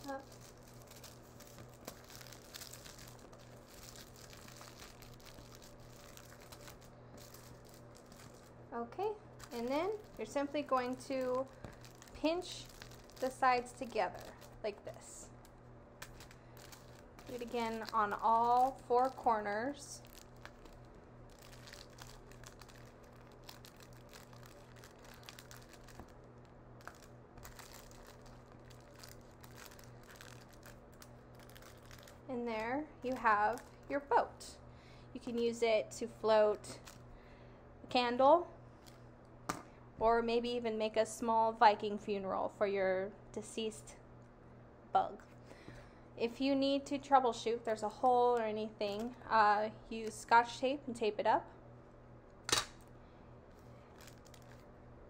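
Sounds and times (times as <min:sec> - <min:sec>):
aluminum foil crinkling: 0:00.0 - 0:08.7, 0:09.3 - 0:34.2, 0:53.5 - 0:54.8
steady low hum: 0:00.0 - 0:55.0.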